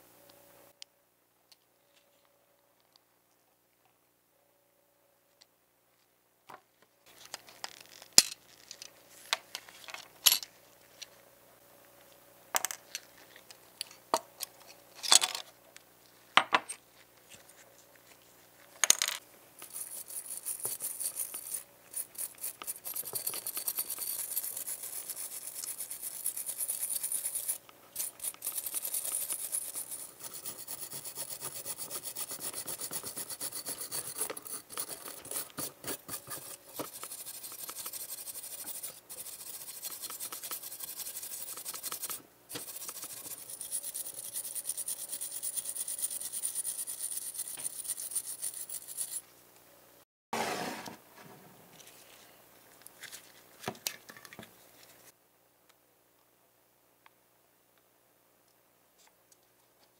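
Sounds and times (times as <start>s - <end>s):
small parts clicking and tapping: 18.8s - 31.8s, 33.8s - 49.2s
wire brush scrubbing metal: 19.7s - 49.2s.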